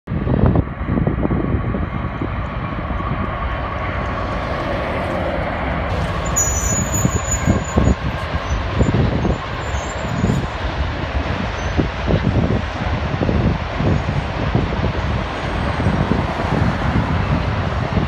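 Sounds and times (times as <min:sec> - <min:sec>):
diesel locomotives passing: 0:00.1 - 0:18.0
freight cars rolling on rails: 0:00.1 - 0:18.0
thin high squeal: 0:06.2 - 0:08.6.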